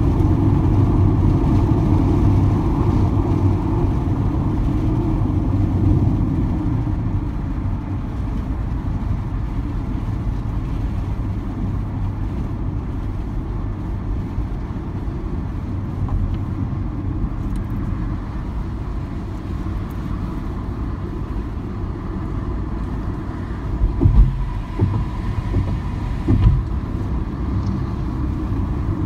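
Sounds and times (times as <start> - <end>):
car road and engine noise: 0.0 - 29.0
low thumps: 23.7 - 27.8.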